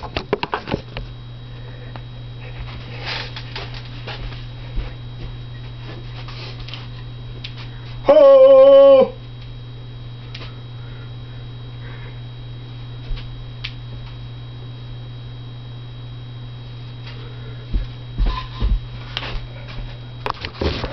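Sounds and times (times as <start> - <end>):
low electrical hum: 0.0 - 20.9
footstep thuds on floor: 17.7 - 19.9.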